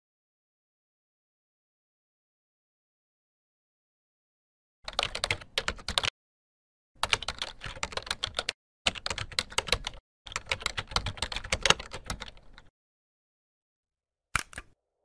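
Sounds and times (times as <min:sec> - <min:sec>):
typing on computer keyboard: 0:04.9 - 0:06.1, 0:07.0 - 0:12.7.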